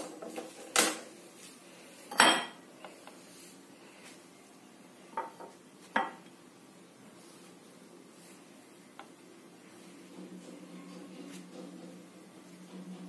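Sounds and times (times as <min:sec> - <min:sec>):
glass bowl clinking: 0:02.1 - 0:02.6.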